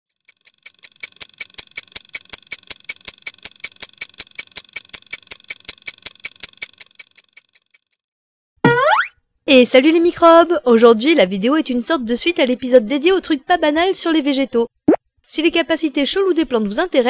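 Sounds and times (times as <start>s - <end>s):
rapid metallic clockwork ticking: 0.1s - 8.0s.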